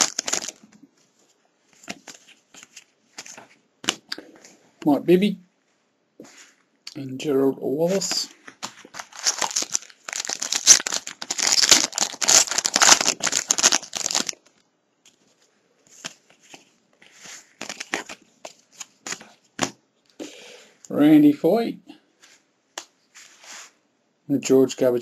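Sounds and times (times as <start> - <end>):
cards rustling: 0.0 - 0.8, 1.7 - 4.1, 7.9 - 14.5, 15.1 - 19.7
wrapper crinkling and tearing: 0.0 - 0.8, 8.5 - 14.6, 17.6 - 18.2.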